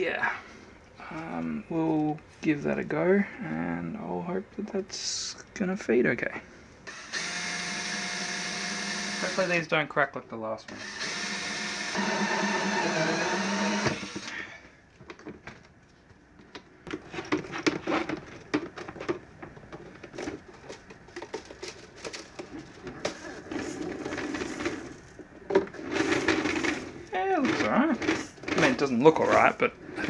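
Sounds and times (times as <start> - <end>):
cordless drill boring plastic: 6.9 - 9.6, 10.7 - 14.4.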